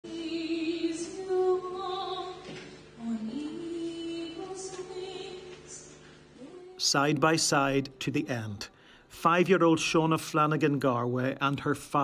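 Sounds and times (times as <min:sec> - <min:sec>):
woman singing: 0:00.0 - 0:06.8.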